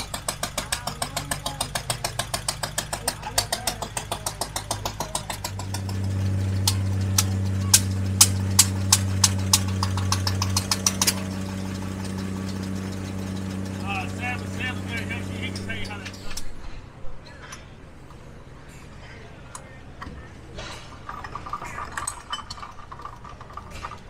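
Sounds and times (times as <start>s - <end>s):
engine rapid ticking: 0.0s - 16.5s
sharp irregular clicks: 0.0s - 16.5s
low engine hum: 0.0s - 16.8s.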